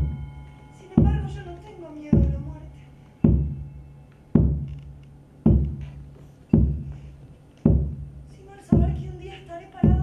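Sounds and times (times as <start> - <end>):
deep drum beats: 1.0 - 1.5, 2.1 - 2.6, 3.2 - 3.7, 4.3 - 9.2.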